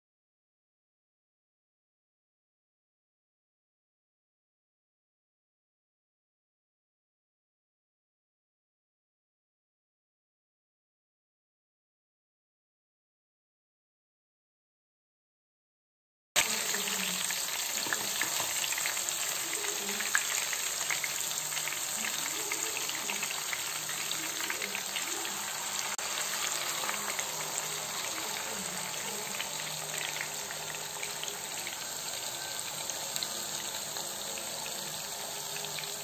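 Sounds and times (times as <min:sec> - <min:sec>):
fish sizzling in oil: 0:16.4 - 0:36.0.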